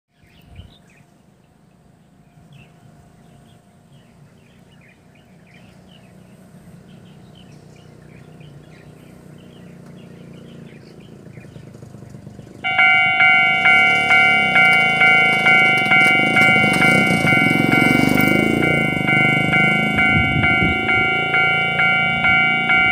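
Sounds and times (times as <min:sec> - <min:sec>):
small birds chirping: 0:00.1 - 0:19.2
level crossing warning bell: 0:12.6 - 0:22.9.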